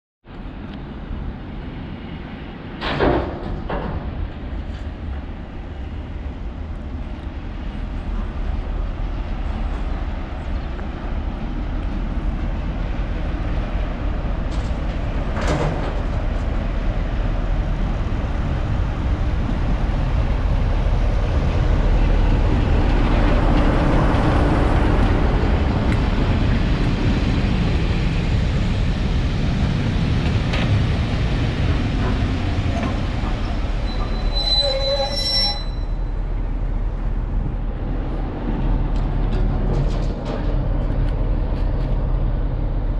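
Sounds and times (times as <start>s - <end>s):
diesel locomotive rumble: 0.3s - 42.9s
train wheels clattering on rails: 2.7s - 5.8s, 8.0s - 34.8s, 38.5s - 42.2s.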